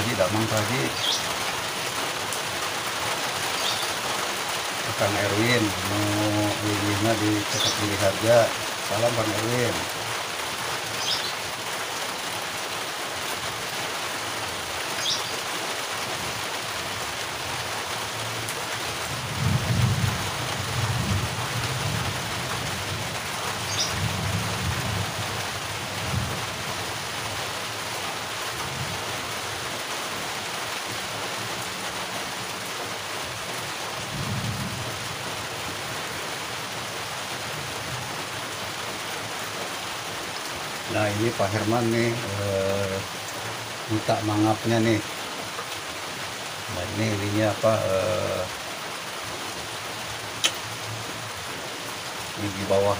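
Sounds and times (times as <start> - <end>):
rain falling steadily: 0.0 - 52.9
low rumbles of thunder: 19.1 - 22.4, 34.1 - 35.0.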